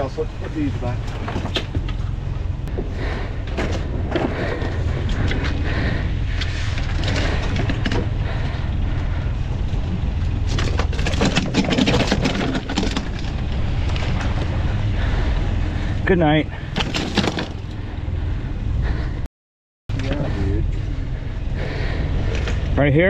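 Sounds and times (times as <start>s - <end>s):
boat engine rumbling: 0.0s - 19.3s, 19.9s - 23.0s
wind: 0.0s - 19.3s, 19.9s - 23.0s
clattering: 10.5s - 14.3s.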